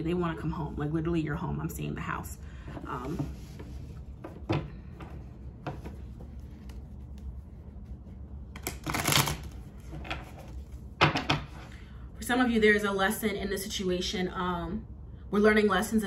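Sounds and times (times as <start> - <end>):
cards shuffling: 5.5 - 10.9.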